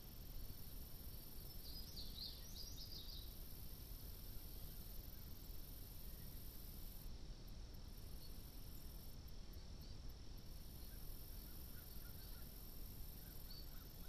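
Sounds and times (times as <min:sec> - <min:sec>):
microphone hiss and rumble: 0:00.0 - 0:14.0
faint bird chirps: 0:01.4 - 0:03.4, 0:10.7 - 0:14.0.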